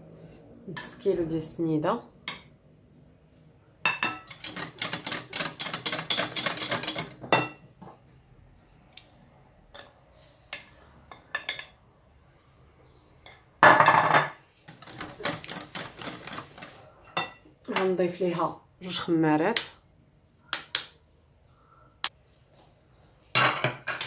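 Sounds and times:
utensils clattering: 3.9 - 7.6, 14.7 - 17.4
utensils clinking on glass bowl: 3.9 - 7.6.

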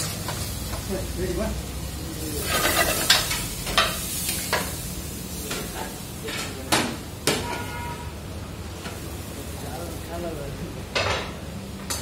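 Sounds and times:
wok and utensil clanking and scraping: 2.4 - 8.1.

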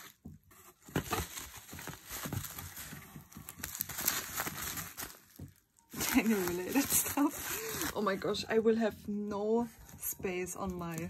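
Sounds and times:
plastic packaging crinkling: 0.0 - 8.7.

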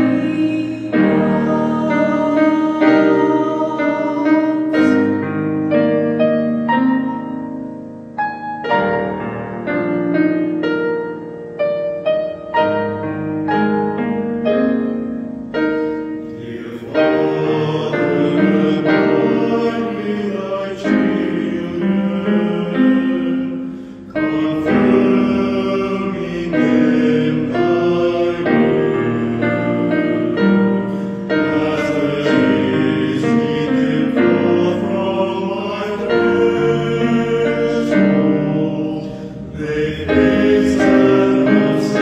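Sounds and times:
mixed choir singing a hymn: 0.0 - 7.3, 15.9 - 42.0
piano accompaniment: 0.0 - 42.0.

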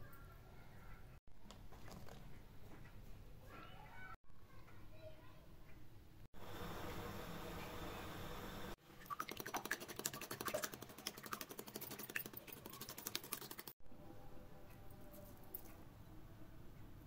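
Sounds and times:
whisk clicking against bowl: 9.1 - 13.7.

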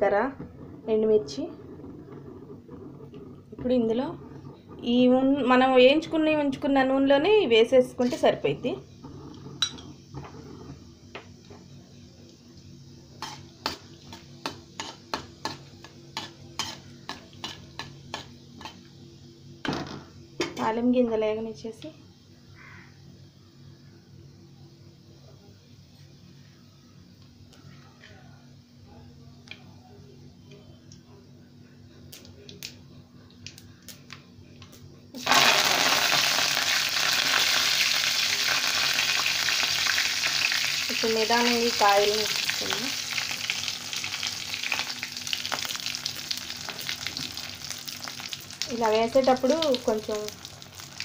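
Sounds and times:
spices sizzling in oil: 13.2 - 18.9, 35.2 - 51.0.

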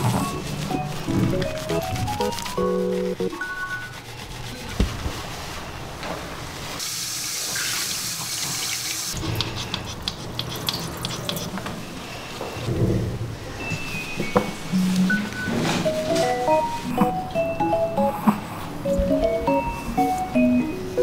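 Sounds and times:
shower hose water rinsing dog: 6.6 - 11.5.

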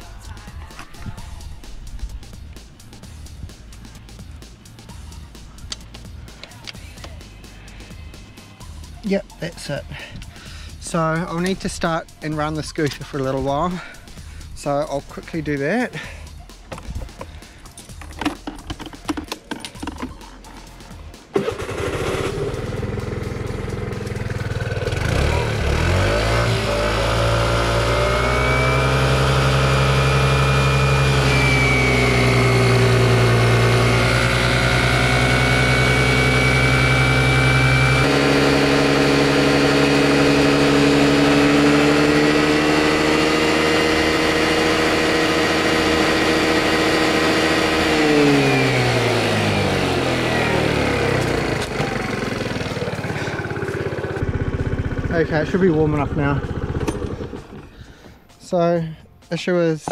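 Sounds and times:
scooter engine running: 21.3 - 58.3.

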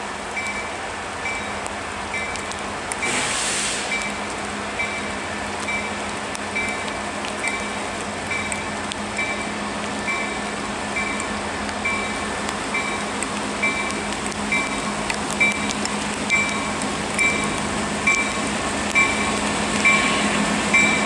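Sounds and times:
diesel locomotive engine drone: 0.0 - 21.0
rain falling: 0.0 - 21.0
locomotive bell ringing: 11.9 - 15.7, 16.4 - 21.0.

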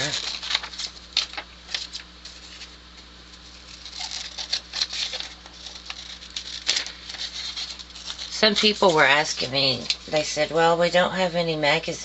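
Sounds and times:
paper rustling: 0.0 - 10.4
scissors snipping paper: 3.6 - 10.1.

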